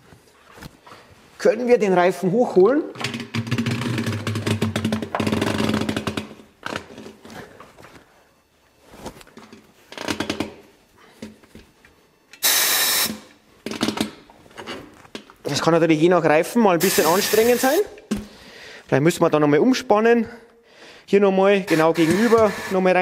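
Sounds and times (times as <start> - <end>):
compressed air hiss: 12.4 - 13.3, 16.8 - 17.9.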